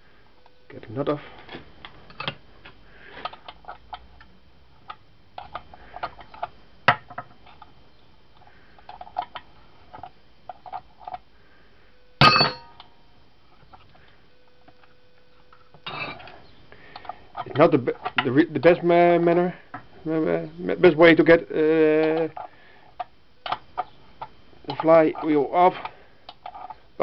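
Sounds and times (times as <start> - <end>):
ringing metal clank: 12.2 - 12.8.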